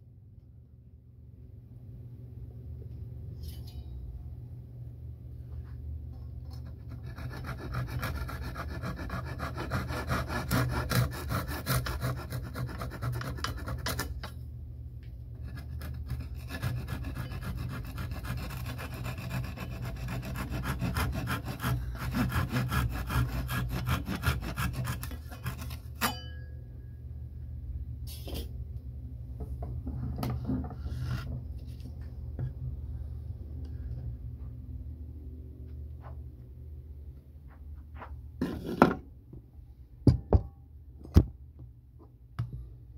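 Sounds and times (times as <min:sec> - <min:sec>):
hand saw rasping through wood: 0:06.9 - 0:14.2, 0:15.4 - 0:26.1.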